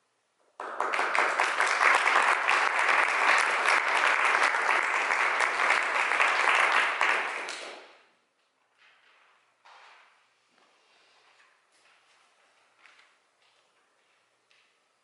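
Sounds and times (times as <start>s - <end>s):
audience applauding: 0.6s - 8.0s.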